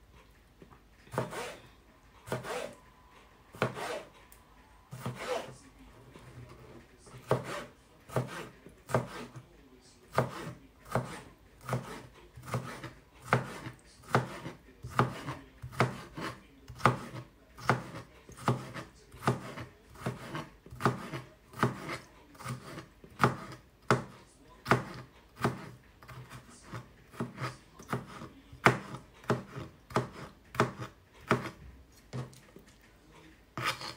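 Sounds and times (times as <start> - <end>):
knife chopping on board: 1.1 - 1.6, 2.3 - 2.8, 3.6 - 4.1, 4.9 - 5.5, 7.2 - 9.4, 10.1 - 32.4, 33.6 - 33.9.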